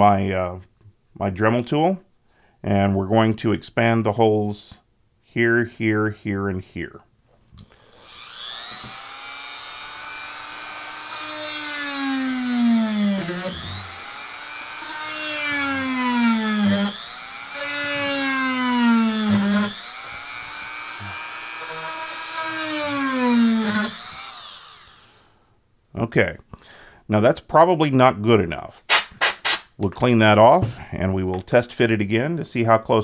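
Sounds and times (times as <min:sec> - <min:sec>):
rotary tool motor whine: 0:07.9 - 0:25.1.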